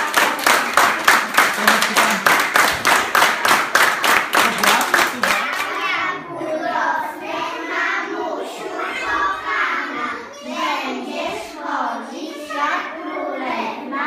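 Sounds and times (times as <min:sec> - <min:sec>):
children singing: 0:05.0 - 0:14.0.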